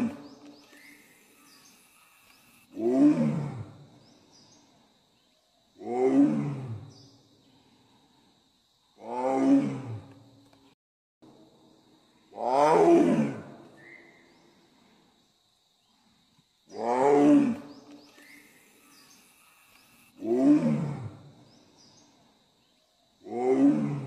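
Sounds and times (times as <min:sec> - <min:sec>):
tiger roaring: 0:02.7 - 0:03.8, 0:05.8 - 0:06.8, 0:09.0 - 0:10.1, 0:12.4 - 0:13.5, 0:20.2 - 0:21.2, 0:23.2 - 0:24.0.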